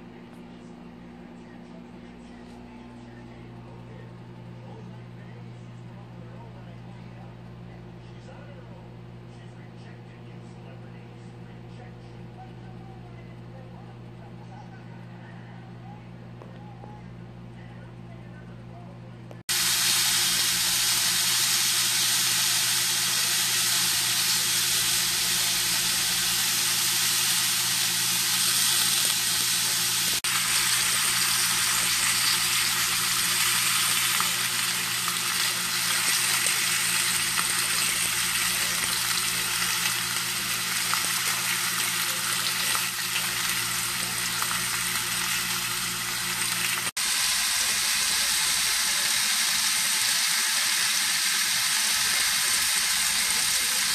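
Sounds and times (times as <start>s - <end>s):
steak sizzling in a pan: 19.5s - 53.9s.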